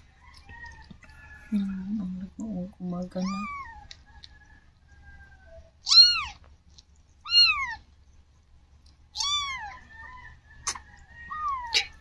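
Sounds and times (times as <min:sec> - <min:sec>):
cat mewing: 0:05.8 - 0:06.4, 0:07.2 - 0:07.8, 0:09.1 - 0:09.8
faint thin cat cries: 0:05.8 - 0:06.4, 0:07.2 - 0:07.8, 0:09.2 - 0:09.8, 0:11.3 - 0:12.0.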